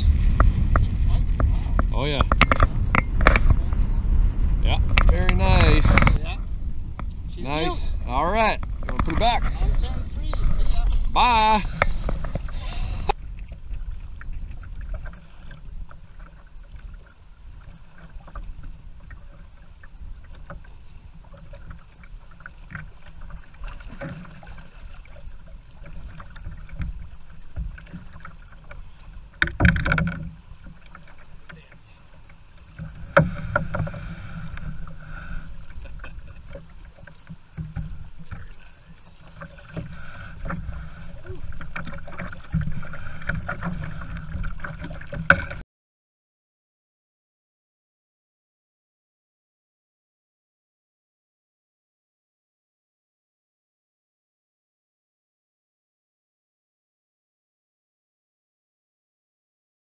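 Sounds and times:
water lapping against a canoe: 0.0 - 45.6
wind rumbling on microphone: 0.0 - 45.6
water splashing: 7.0 - 45.6
small knocks: 25.8 - 31.8.

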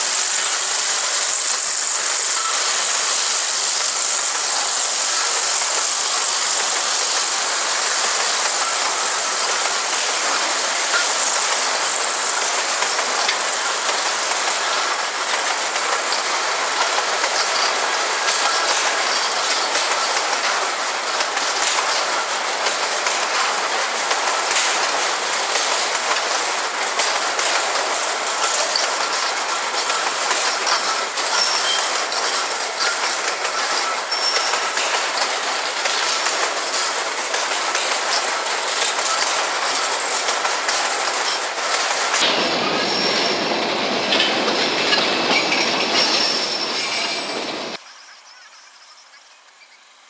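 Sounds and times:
freight train wheels rumbling: 0.0 - 47.8
high wheel squeal: 0.3 - 15.0, 27.0 - 38.4, 42.5 - 43.6, 44.8 - 47.8.

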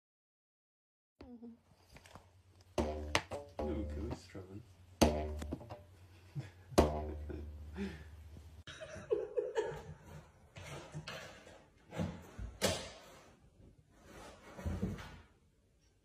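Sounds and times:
sharp knock: 5.0 - 5.7
person laughing: 6.3 - 8.1.

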